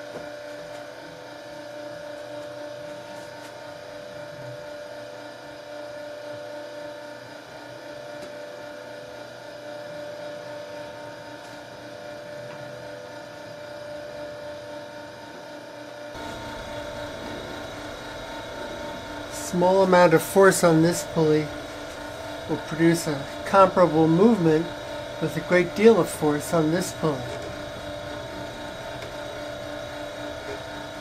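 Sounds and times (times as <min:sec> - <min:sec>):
machine motor humming: 0:16.2 - 0:31.0.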